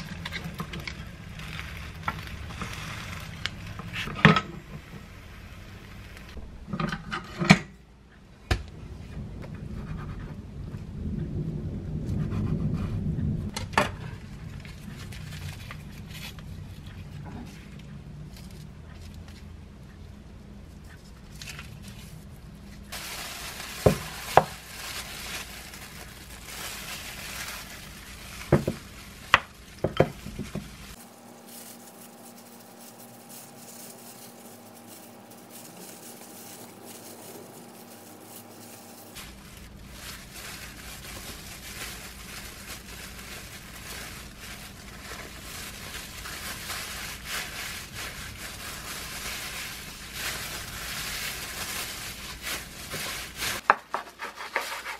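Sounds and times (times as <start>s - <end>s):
rustling plastic gloves and seaweed: 0.0s - 6.6s, 14.0s - 19.6s, 20.7s - 54.9s
faint steady hum: 0.0s - 53.7s
spatula scraping rice: 53.9s - 54.9s.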